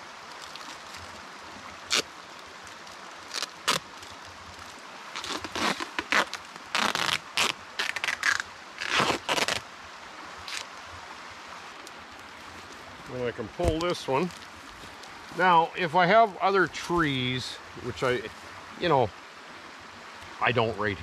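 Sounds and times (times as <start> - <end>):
duct tape pulled off roll: 1.9 - 2.1, 3.3 - 4.2, 5.2 - 9.6, 10.4 - 10.7.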